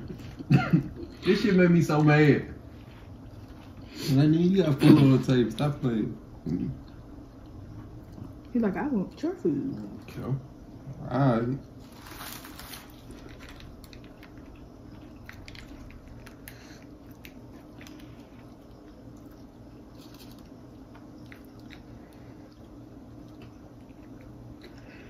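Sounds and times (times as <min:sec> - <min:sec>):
low steady hum: 0:00.0 - 0:25.0
chewing with wet mouth sounds: 0:02.7 - 0:03.9, 0:13.1 - 0:25.0.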